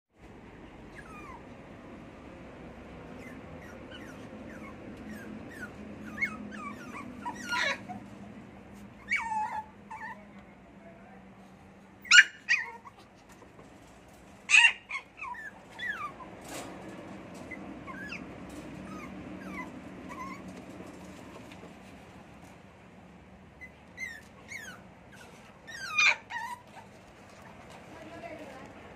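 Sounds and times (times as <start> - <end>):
puppies yelping: 0.8 - 1.6, 3.0 - 10.2, 12.0 - 13.4, 14.5 - 16.6, 17.4 - 21.6, 23.6 - 27.5
puppies whimpering: 0.9 - 1.6, 3.1 - 10.2, 12.0 - 13.4, 14.5 - 16.4, 17.4 - 21.6, 23.6 - 27.6.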